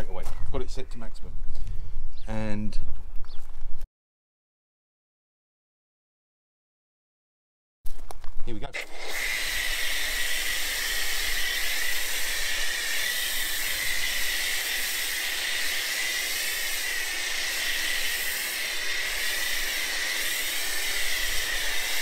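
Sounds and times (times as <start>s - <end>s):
pressure washer spraying foam: 8.8s - 22.0s.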